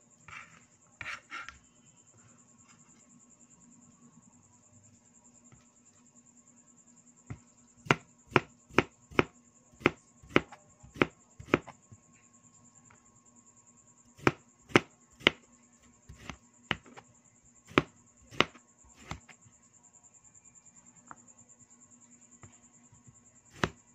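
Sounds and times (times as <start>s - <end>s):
cleaver knocking on cutting board: 17.7s - 19.3s, 23.5s - 23.8s.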